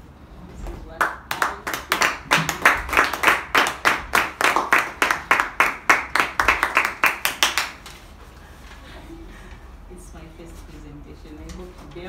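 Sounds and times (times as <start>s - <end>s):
hand clapping applause: 1.0s - 7.9s.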